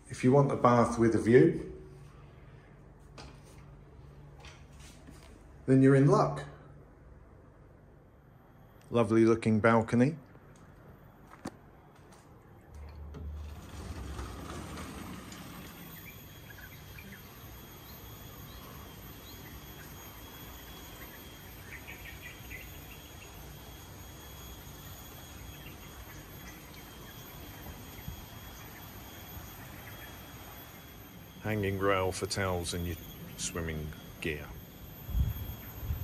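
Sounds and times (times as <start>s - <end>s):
sliding glass door rumble: 12.9s - 16.2s
high insect drone: 13.7s - 36.0s
bird chirps: 15.7s - 23.7s, 24.5s - 30.9s.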